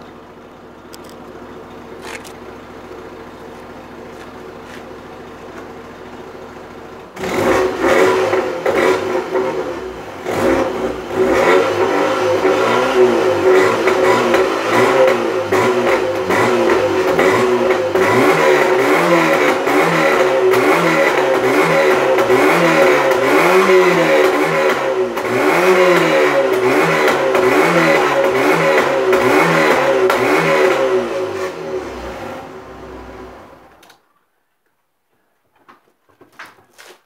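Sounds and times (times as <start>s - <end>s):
car engine revving: 7.2s - 33.7s.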